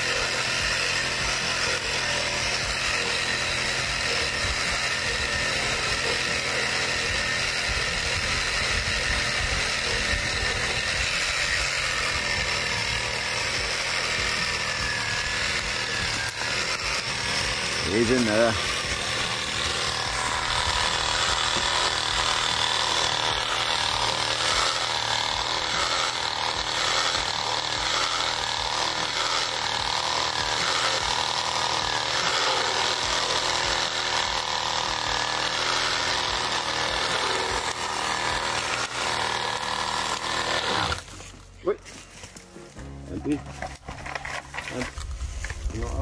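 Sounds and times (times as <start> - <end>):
chainsaw cutting wood: 0.0 - 46.0.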